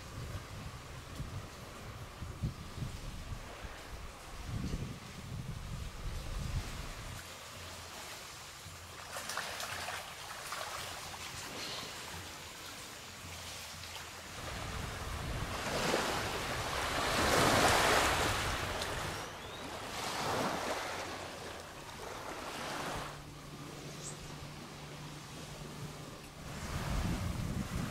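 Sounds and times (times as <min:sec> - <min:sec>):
wind rumble on microphone: 0:00.0 - 0:07.2, 0:14.3 - 0:27.9
small waves washing on sand: 0:05.9 - 0:27.9.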